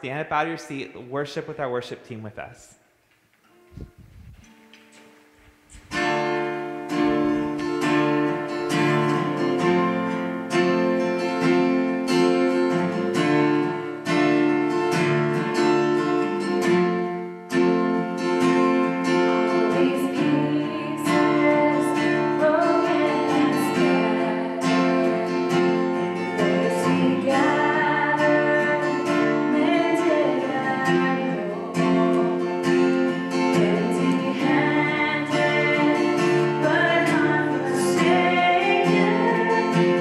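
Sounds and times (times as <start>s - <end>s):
acoustic guitar strumming: 3.4s - 40.0s
woman singing: 19.5s - 40.0s.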